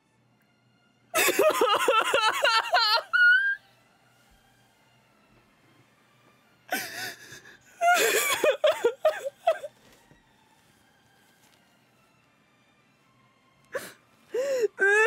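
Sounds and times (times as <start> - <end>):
person sobbing: 1.2 - 3.6, 6.7 - 9.8, 13.7 - 15.0.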